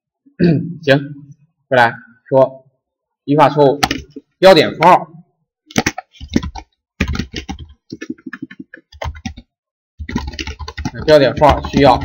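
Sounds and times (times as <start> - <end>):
typing on computer keyboard: 3.8 - 4.2, 5.7 - 12.0.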